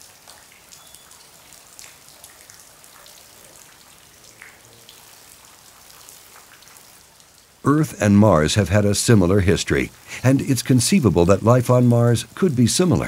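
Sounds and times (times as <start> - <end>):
water dripping and splashing: 0.0 - 13.0
soft background hiss: 7.6 - 13.0.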